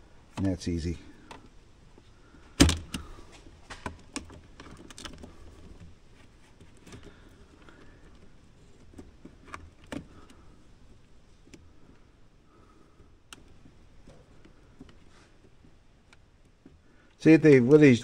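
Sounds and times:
plastic and metal parts clicking: 2.5s - 12.1s.

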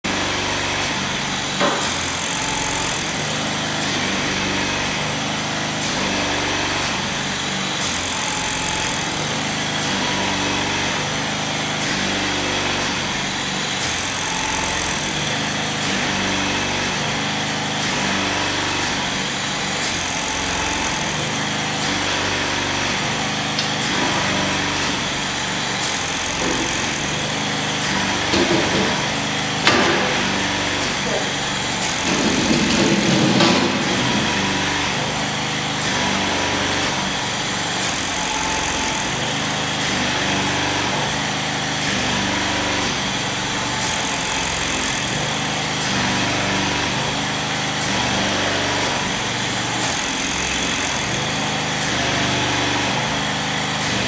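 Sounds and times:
feed machinery running: 0.0s - 54.0s.

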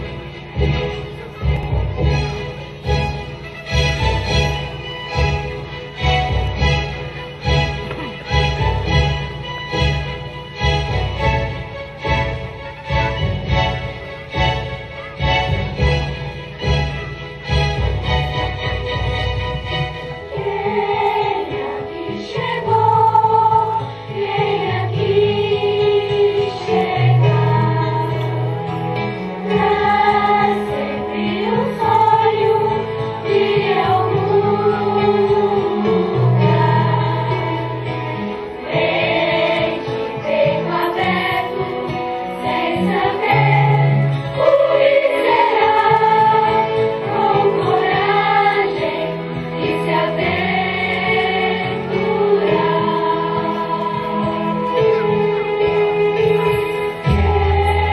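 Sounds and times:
choir singing: 0.0s - 1.2s, 19.6s - 57.9s
held bass notes: 26.7s - 57.9s.

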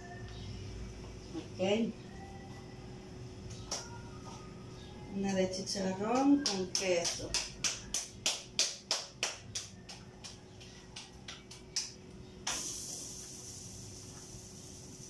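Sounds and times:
hands slapping dough: 6.1s - 12.7s
hiss: 12.4s - 15.0s.

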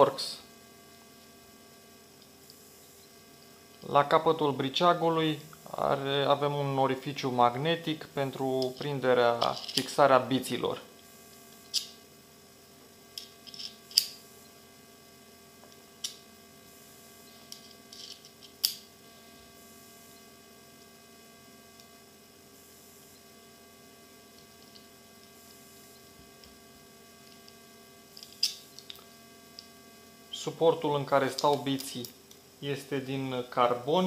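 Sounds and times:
electrical mains hum: 0.0s - 34.0s
screwdriver bits clicking: 8.6s - 9.9s, 13.2s - 14.2s, 17.5s - 18.8s.

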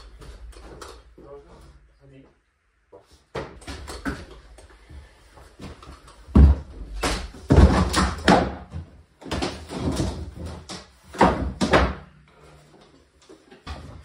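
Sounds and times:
wooden planks knocking and clattering: 5.8s - 12.0s.

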